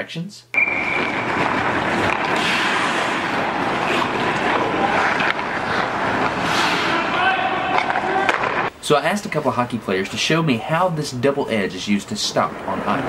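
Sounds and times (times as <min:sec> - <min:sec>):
skate blades scraping ice: 0:00.6 - 0:08.7
faint clacks of hockey sticks: 0:07.7 - 0:08.6.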